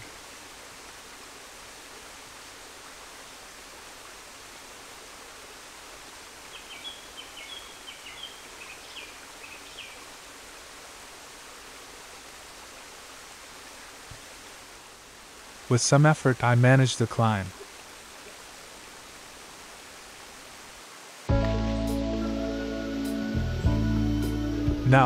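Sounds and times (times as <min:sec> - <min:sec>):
stream and small waterfalls: 0:00.0 - 0:25.0.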